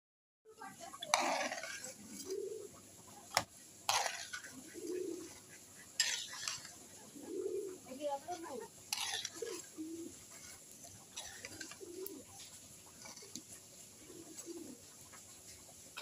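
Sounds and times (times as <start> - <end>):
metal spatula scraping pot: 0.9 - 2.4, 3.3 - 7.0, 8.2 - 12.3, 12.9 - 13.5
low cooing calls: 1.0 - 16.0.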